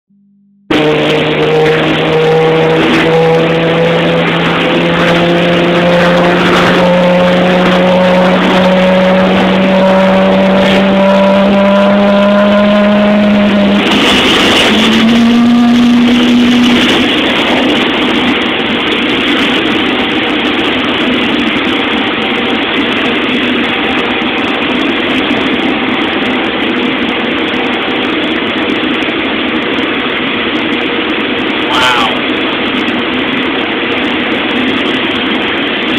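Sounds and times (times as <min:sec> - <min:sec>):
jet engine roar: 0:00.7 - 0:35.9
jet engine whine rising: 0:00.7 - 0:35.9.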